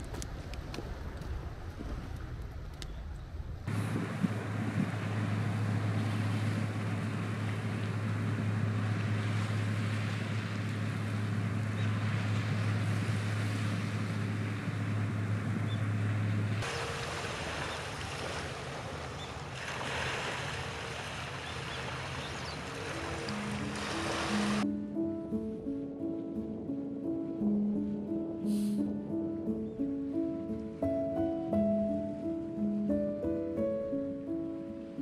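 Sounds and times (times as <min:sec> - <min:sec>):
low engine hum: 0:00.0 - 0:35.0
wind: 0:00.0 - 0:35.0
sea waves on shore: 0:03.7 - 0:24.7.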